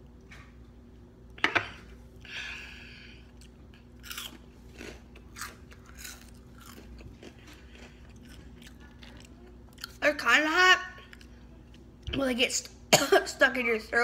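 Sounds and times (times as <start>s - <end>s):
boy chewing crunchy snacks: 3.2s - 10.0s.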